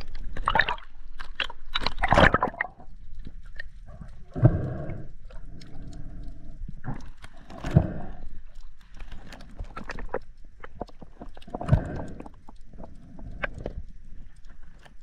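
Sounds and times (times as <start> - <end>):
water gurgling in tube: 0.0 - 2.9
breathing through snorkel: 4.0 - 8.5, 11.5 - 13.8.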